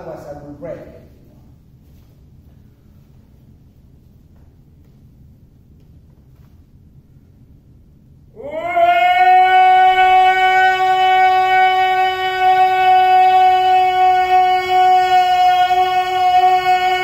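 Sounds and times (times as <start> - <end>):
man chanting: 8.4 - 17.0.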